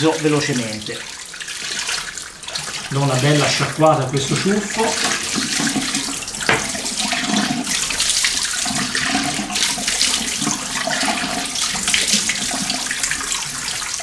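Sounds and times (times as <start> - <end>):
tap water splashing in sink: 0.0 - 14.0.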